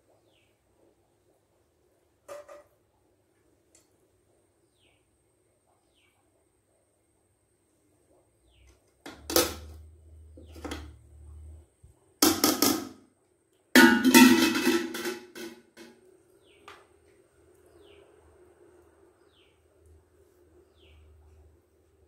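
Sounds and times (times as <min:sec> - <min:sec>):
birds chirping faintly: 0:00.0 - 0:09.0, 0:16.0 - 0:22.0.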